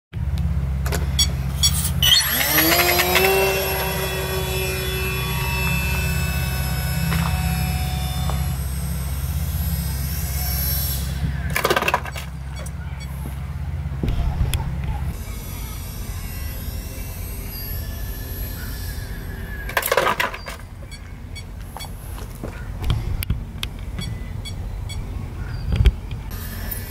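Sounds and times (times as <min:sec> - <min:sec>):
model plane electric motor whining: 0:01.2 - 0:12.4, 0:15.1 - 0:21.6, 0:26.2 - 0:26.9.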